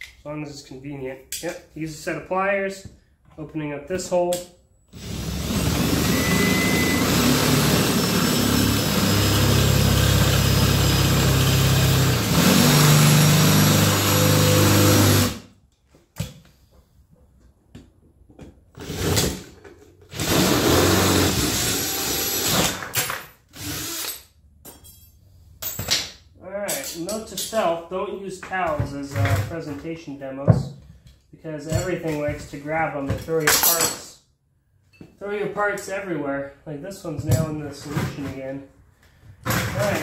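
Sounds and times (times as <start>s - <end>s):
cordless drill boring into steel: 5.0s - 15.4s, 20.2s - 22.8s, 23.6s - 24.1s.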